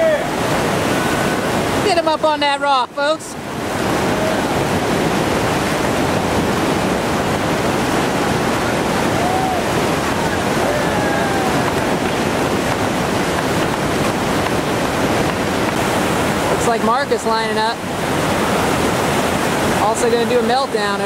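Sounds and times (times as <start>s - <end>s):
whitewater rapid rushing: 0.0s - 21.0s
faint distant shouts: 9.0s - 12.0s.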